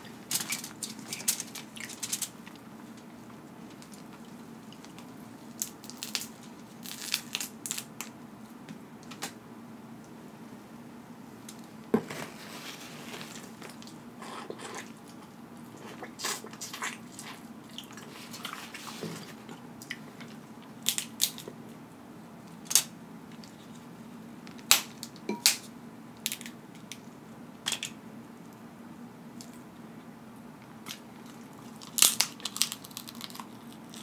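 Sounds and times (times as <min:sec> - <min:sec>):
crab shells cracking: 0:03.8 - 0:08.1, 0:20.8 - 0:21.5, 0:26.2 - 0:27.0, 0:31.7 - 0:34.0
soft rustles: 0:12.0 - 0:13.8.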